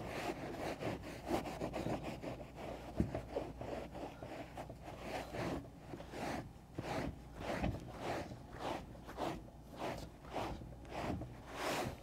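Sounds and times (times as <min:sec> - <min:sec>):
towel scrubbing a carpet mat: 0:00.0 - 0:12.0.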